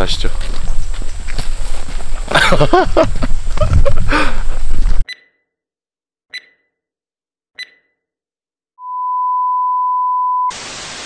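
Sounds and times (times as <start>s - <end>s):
short high beeps: 7.6s - 8.0s
hiss of static: 10.5s - 11.0s.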